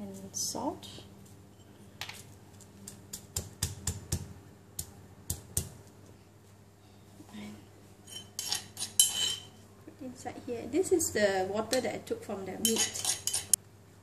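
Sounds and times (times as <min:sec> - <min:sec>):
pestle pounding in stone mortar: 0:03.1 - 0:05.8.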